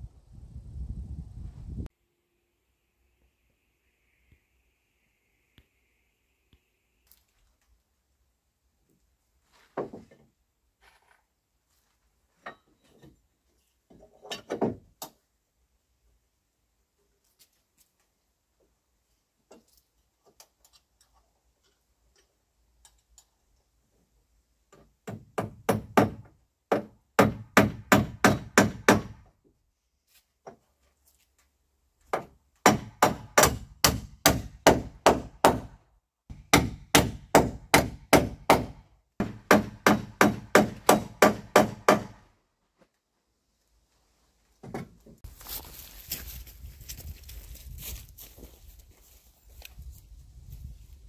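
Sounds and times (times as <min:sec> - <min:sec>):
hammer striking nails into wood: 0:25.0 - 0:29.2, 0:32.1 - 0:42.2.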